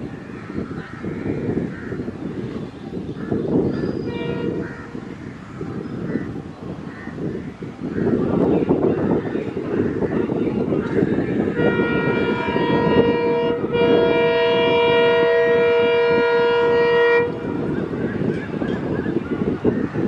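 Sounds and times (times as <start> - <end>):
approaching train rumble: 0.0 - 20.0
wind: 0.0 - 20.0
locomotive horn blasts: 4.0 - 5.0, 11.4 - 17.9.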